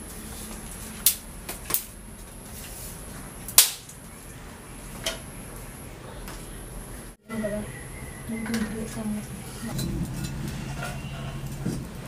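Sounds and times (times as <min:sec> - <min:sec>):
firewood sticks snapping: 0:01.0 - 0:01.9, 0:03.5 - 0:04.0.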